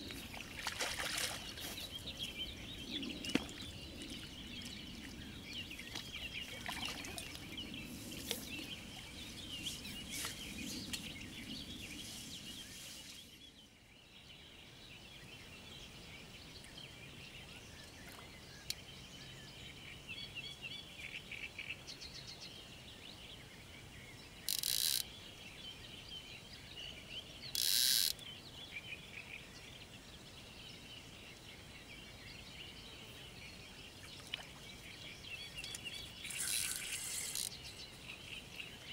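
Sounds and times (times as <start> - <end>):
birds chirping and singing: 30.4 - 38.9.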